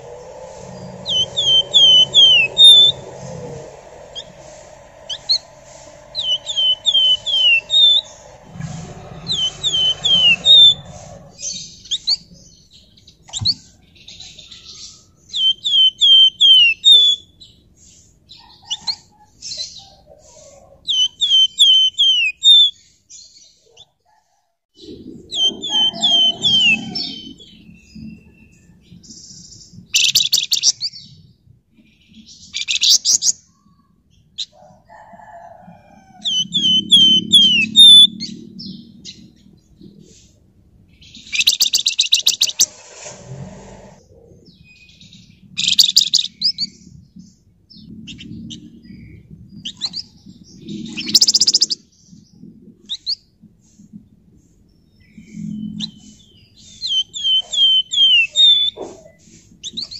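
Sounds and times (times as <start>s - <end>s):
songbird whistling falling notes: 0.0s - 4.4s, 5.0s - 8.7s, 25.3s - 27.4s
bird rasping chatter: 0.0s - 12.3s, 24.9s - 27.6s, 36.2s - 38.4s, 41.2s - 43.1s, 50.7s - 51.8s, 55.8s - 59.9s
low rumble: 0.0s - 12.7s, 46.7s - 51.0s.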